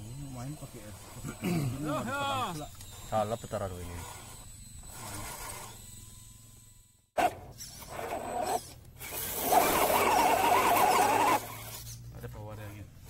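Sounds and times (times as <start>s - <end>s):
small electric motor whining: 0.0s - 13.0s
tyres churning in mud: 7.9s - 11.9s.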